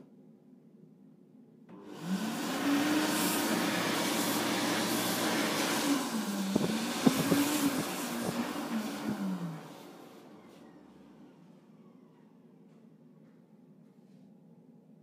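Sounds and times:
hand dryer running: 0:01.7 - 0:12.3.

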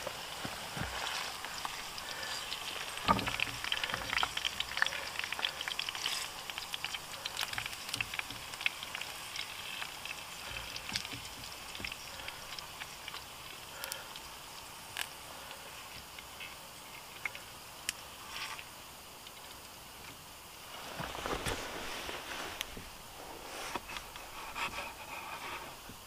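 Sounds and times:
meat sizzling in a frying pan: 0:00.0 - 0:20.6.

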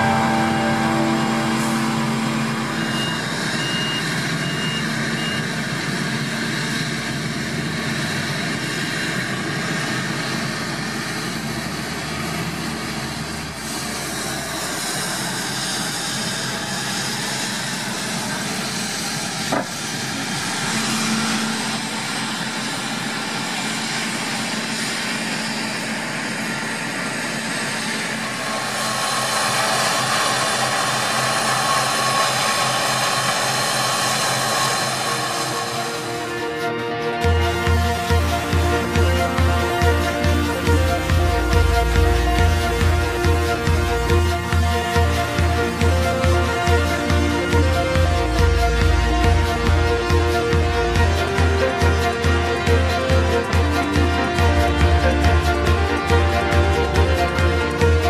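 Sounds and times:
reversing beeps: 0:00.0 - 0:05.7
diesel engines running: 0:00.0 - 0:58.0.

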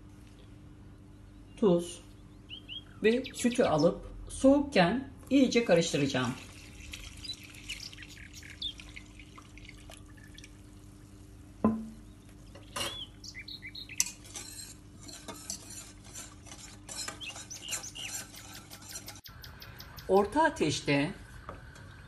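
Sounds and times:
small birds chirping: 0:00.2 - 0:04.2, 0:06.6 - 0:09.7, 0:11.9 - 0:14.4, 0:16.9 - 0:20.5
milk pouring into saucepan: 0:06.2 - 0:11.3
pot clunk: 0:11.6 - 0:12.0
wire whisk rattling in pot: 0:14.0 - 0:19.3.

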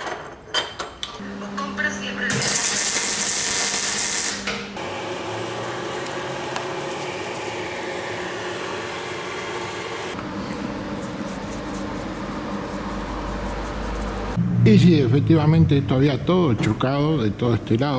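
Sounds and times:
mechanical hum: 0:00.0 - 0:17.9
welding arc crackle: 0:02.3 - 0:04.5.

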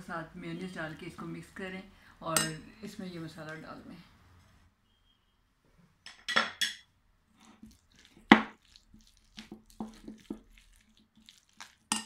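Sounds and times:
wet squishing of egg mixture: 0:07.2 - 0:12.0
spatula knocking and scraping plate: 0:09.4 - 0:10.4.

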